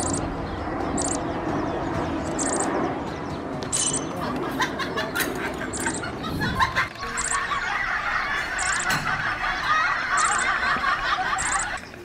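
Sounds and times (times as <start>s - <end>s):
small bird chirping: 0.0s - 1.3s, 2.2s - 4.1s, 5.7s - 6.1s, 7.0s - 7.6s, 8.6s - 8.9s, 10.2s - 10.5s, 11.4s - 12.0s
background murmur: 0.4s - 12.0s
sharp clicks: 3.6s - 4.1s.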